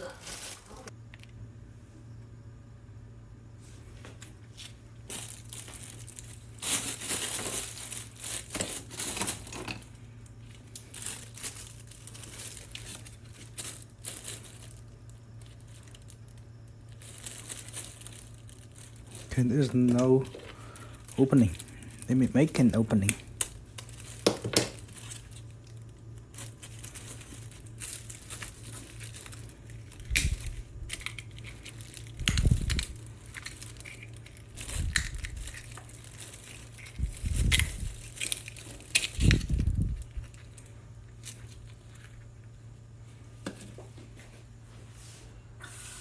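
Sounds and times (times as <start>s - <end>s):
pliers crunching oyster shell: 27.9s - 40.4s.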